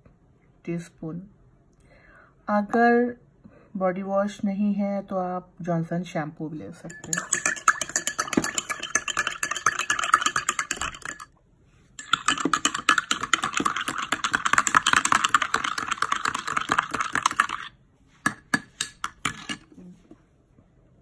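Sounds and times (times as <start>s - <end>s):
spoon clinking in ceramic cup: 6.8s - 11.3s, 12.0s - 17.7s, 18.3s - 19.7s.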